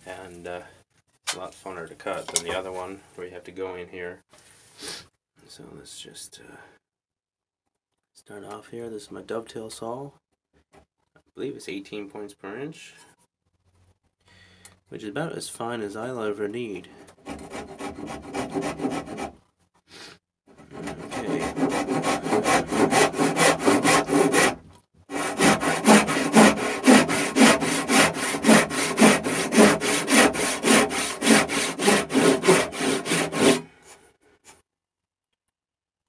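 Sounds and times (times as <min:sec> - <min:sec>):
backsaw cutting wood: 0:17.2 - 0:19.4, 0:20.5 - 0:33.7.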